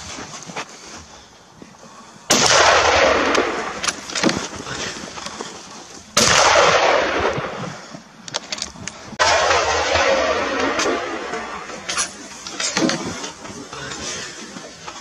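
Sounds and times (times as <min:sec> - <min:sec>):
gunshots echoing: 0:02.3 - 0:05.2, 0:06.1 - 0:08.0, 0:09.1 - 0:14.2.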